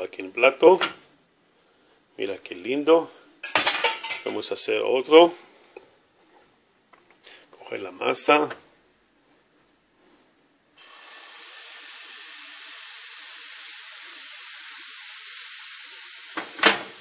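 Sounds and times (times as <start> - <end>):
gas stovetop hissing: 10.8 - 17.0.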